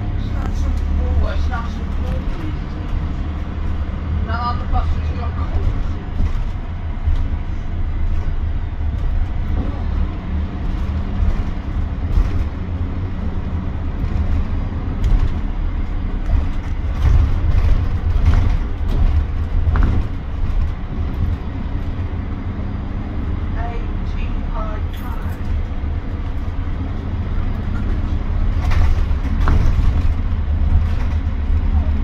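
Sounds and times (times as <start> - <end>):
bus engine and road rumble: 0.0 - 32.0
body knocks and rattles: 5.3 - 10.0, 10.6 - 22.2, 27.5 - 32.0.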